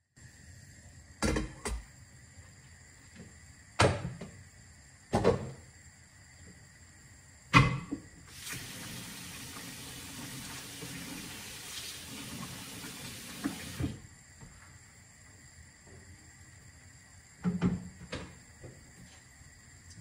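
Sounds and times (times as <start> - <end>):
steady hiss: 8.2 - 17.4.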